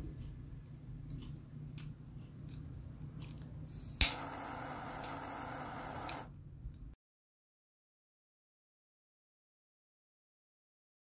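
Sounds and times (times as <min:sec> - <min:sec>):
gas hissing: 0:03.7 - 0:06.3
jet flame hissing: 0:03.7 - 0:06.3
lighter handling clicks: 0:03.8 - 0:06.3
piezo ignition click: 0:03.8 - 0:06.3.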